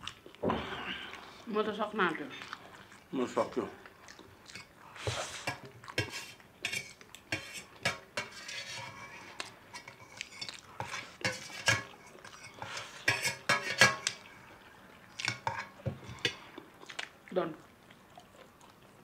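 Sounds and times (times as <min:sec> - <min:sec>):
noodles being slurped: 0:02.3 - 0:17.2
cutlery clinking on steel plates: 0:05.4 - 0:14.2, 0:15.2 - 0:16.4.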